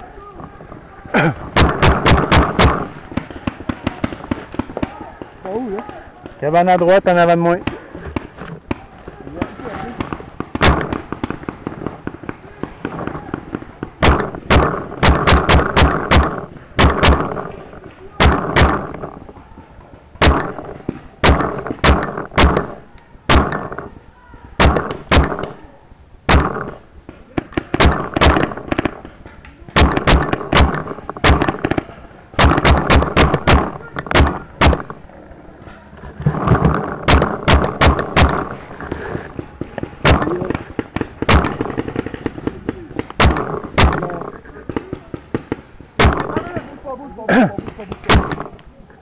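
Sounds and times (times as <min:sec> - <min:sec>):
paintball marker firing shots: 0:01.6 - 0:19.3, 0:20.2 - 0:24.0, 0:24.6 - 0:25.7, 0:26.3 - 0:35.0, 0:36.3 - 0:46.8, 0:47.6 - 0:48.6.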